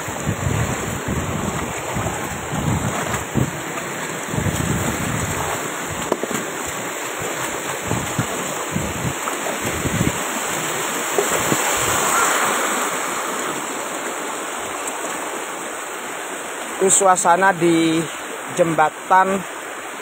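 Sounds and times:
wind buffeting microphone: 0:00.0 - 0:13.3
floodwater rushing: 0:00.0 - 0:20.0.

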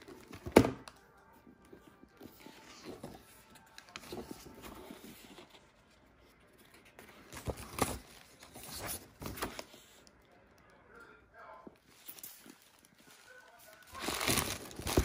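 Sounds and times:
paper pages turning: 0:01.6 - 0:10.2, 0:11.8 - 0:15.0.

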